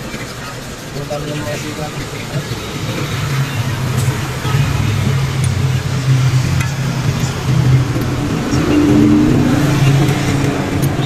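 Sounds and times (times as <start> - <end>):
motor engine humming: 2.1 - 11.0
brief higher tone: 8.4 - 10.1.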